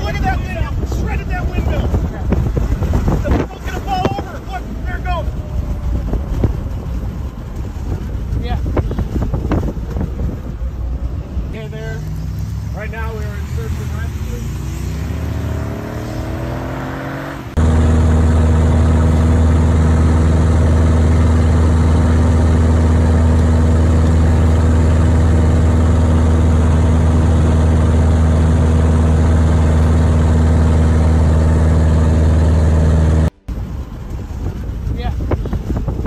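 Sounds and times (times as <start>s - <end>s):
car driving engine rising: 0.0s - 36.0s
propeller aircraft engine drone: 17.2s - 36.0s.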